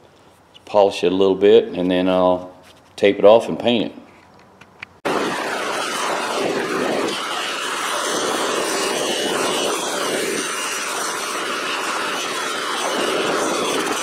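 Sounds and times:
bench grinder polishing metal: 5.4s - 14.0s.

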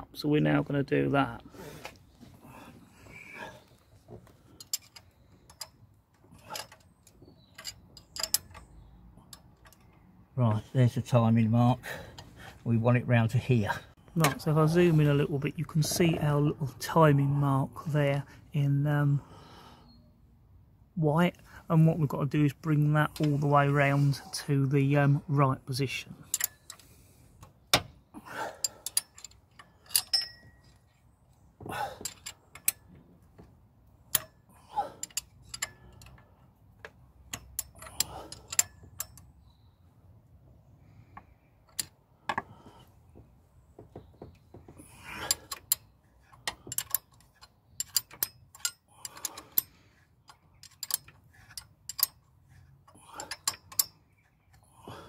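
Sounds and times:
metallic clicks of a ring spanner: 4.6s - 10.2s, 26.2s - 27.8s, 28.6s - 31.0s, 32.0s - 33.0s, 33.9s - 39.5s, 45.1s - 54.6s.

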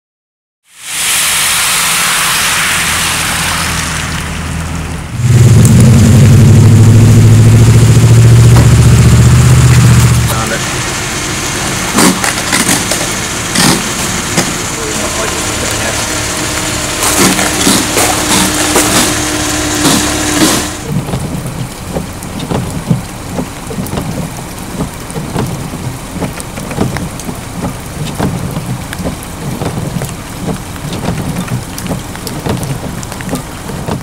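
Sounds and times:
loud rush with low hum: 0.7s - 33.3s
freezing rain ticking on branches: 7.2s - 34.0s.

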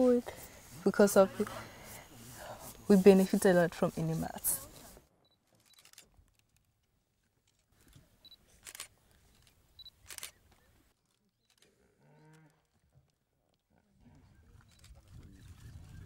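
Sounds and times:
camera autofocus beep: 5.2s - 6.0s, 9.8s - 10.4s.

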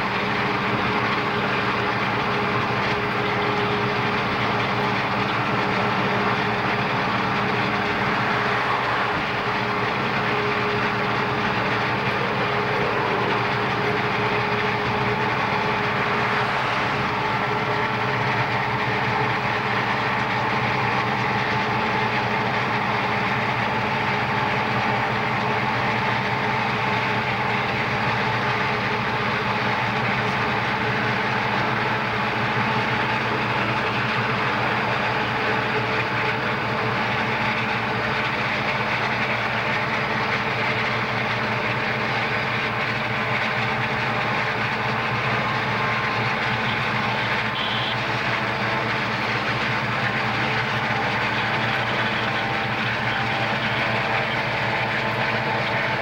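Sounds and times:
diesel locomotives running: 0.0s - 56.0s.

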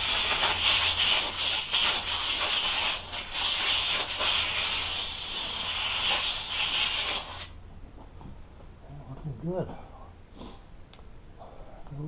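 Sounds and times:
steamer hissing: 0.0s - 7.5s.

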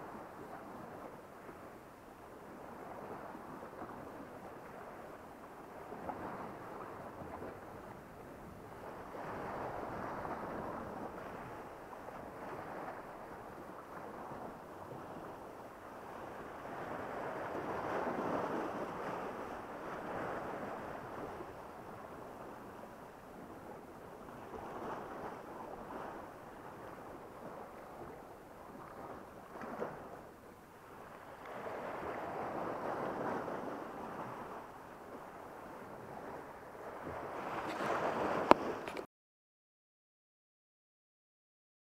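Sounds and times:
waves washing against rocky shore: 5.6s - 39.0s.

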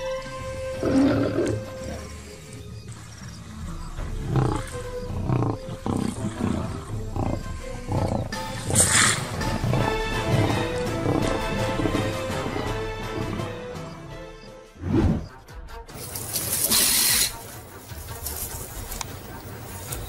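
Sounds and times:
background music with held notes: 0.0s - 20.0s
lions roaring: 0.7s - 13.6s.

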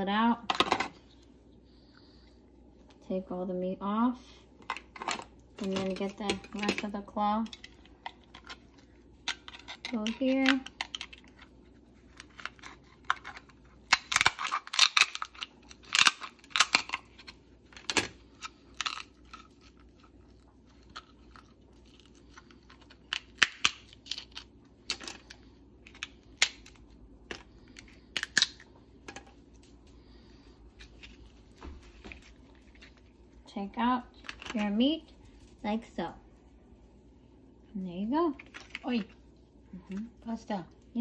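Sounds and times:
lobster shell cracking and clicking: 12.1s - 19.8s, 20.8s - 29.8s.

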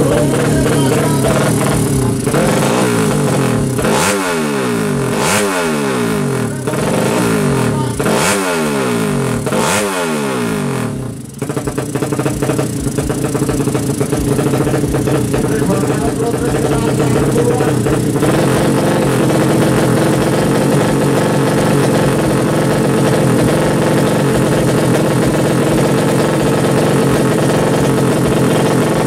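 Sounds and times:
motorcycle engine idling and revving: 0.0s - 29.0s.

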